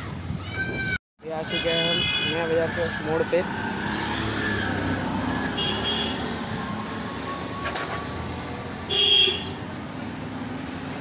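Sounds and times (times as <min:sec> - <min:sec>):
street traffic: 0:00.0 - 0:11.0
vehicle horn beep: 0:05.5 - 0:06.3, 0:08.9 - 0:09.6.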